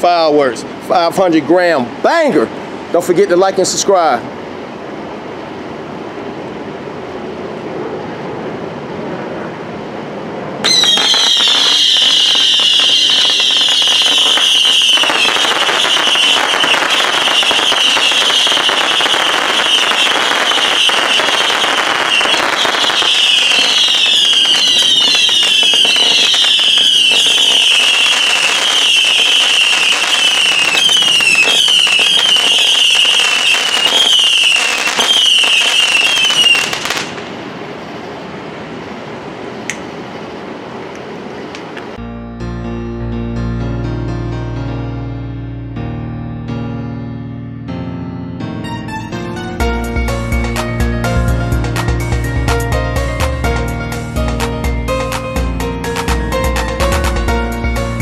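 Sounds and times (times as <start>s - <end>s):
fireworks pops and crackles: 10.6s - 37.3s
fireworks whistles: 10.6s - 37.4s.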